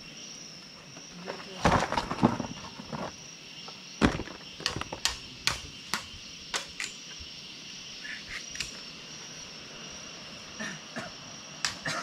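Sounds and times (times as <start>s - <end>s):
insect chorus trilling: 0.0s - 12.0s
sharp knocks and taps: 4.6s - 6.9s.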